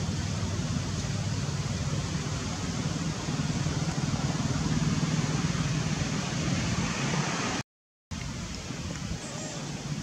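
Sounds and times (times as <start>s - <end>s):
steady rushing noise: 0.0s - 7.6s.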